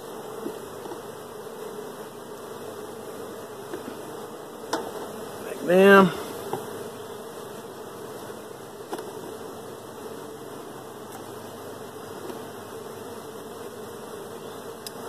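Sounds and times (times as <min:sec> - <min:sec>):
bees buzzing: 0:00.0 - 0:15.0
hive tool scraping wood clicks: 0:00.3 - 0:01.7, 0:03.6 - 0:04.1, 0:08.8 - 0:09.4, 0:11.1 - 0:11.4, 0:12.1 - 0:12.5, 0:14.8 - 0:15.0.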